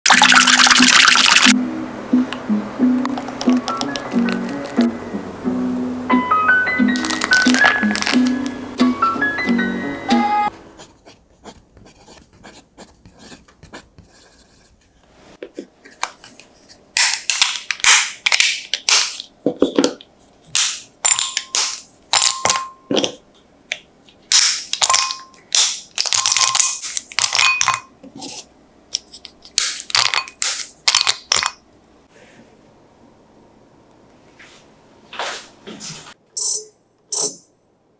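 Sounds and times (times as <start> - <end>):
chocolate bar snapping: 17.0 - 19.2.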